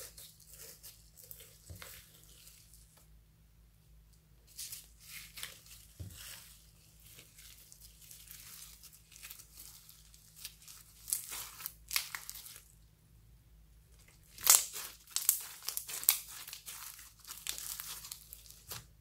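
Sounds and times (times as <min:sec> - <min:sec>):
slime crackling and popping: 0:07.0 - 0:12.7, 0:14.2 - 0:18.9.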